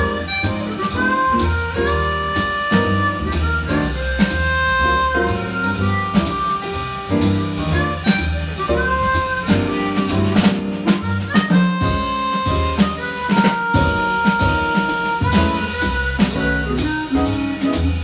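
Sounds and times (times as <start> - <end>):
chromatic harmonica melody: 0.0 - 18.0
drums: 0.0 - 18.0
piano: 0.0 - 18.0
upright bass: 0.0 - 18.0.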